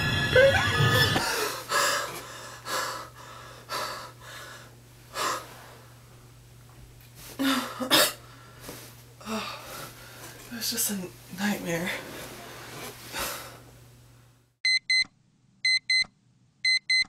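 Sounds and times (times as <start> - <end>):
woman gasping and breathing heavily: 1.2 - 5.5, 7.4 - 8.6, 9.2 - 10.3.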